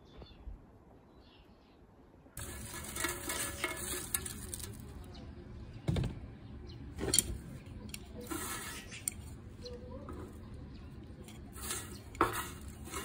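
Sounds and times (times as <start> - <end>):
dry leaves pouring into pan: 2.4 - 5.1, 8.2 - 8.9, 11.5 - 13.0.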